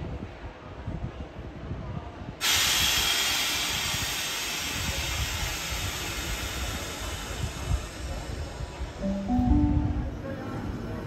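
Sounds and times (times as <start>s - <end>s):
compressed air hissing from train: 2.4s - 8.3s.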